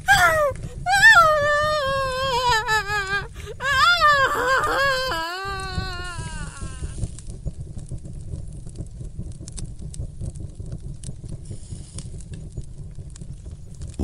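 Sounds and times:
high wavering wail: 0:00.0 - 0:07.0
faint crackles: 0:00.0 - 0:14.0
steady low rumble: 0:00.0 - 0:14.0.

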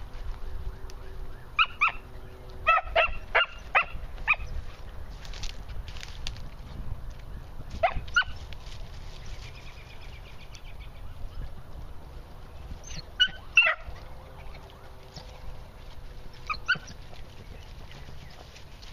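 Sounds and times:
hounds barking: 0:01.5 - 0:04.6, 0:07.7 - 0:08.4, 0:12.8 - 0:15.7, 0:16.3 - 0:17.2.

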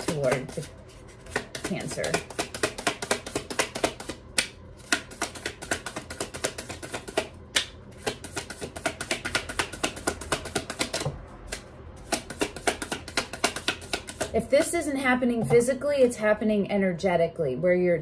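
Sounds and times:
cards being shuffled: 0:00.0 - 0:04.2, 0:04.8 - 0:14.3.

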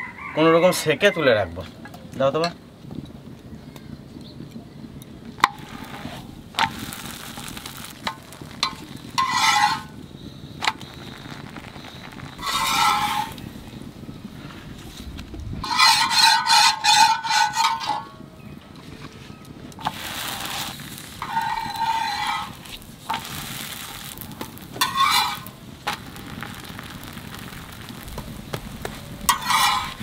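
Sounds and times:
low rumble: 0:11.6 - 0:15.8.

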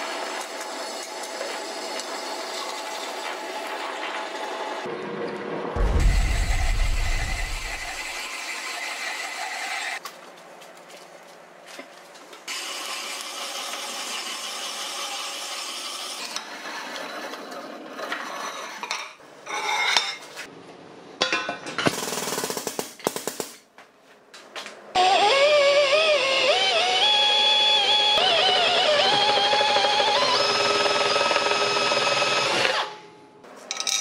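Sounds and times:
drill grinding through steel: 0:05.8 - 0:10.0, 0:25.0 - 0:32.9
drill squealing: 0:25.0 - 0:32.9.

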